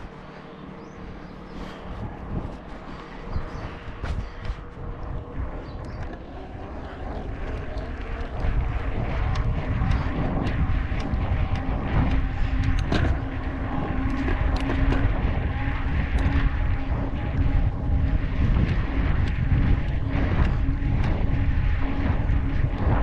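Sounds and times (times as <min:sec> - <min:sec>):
bike clicking and rattling: 0:00.0 - 0:23.0
steady low hum: 0:00.0 - 0:23.0
wind rumbling on microphone: 0:00.0 - 0:23.0.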